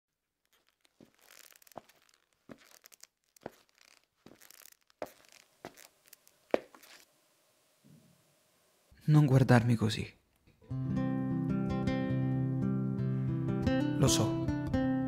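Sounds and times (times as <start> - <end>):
cloth and hair rustling: 0.4 - 7.1.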